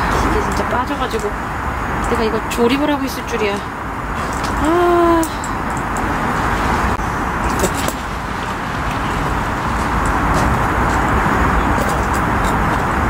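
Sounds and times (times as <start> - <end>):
road traffic hum: 0.0 - 13.0.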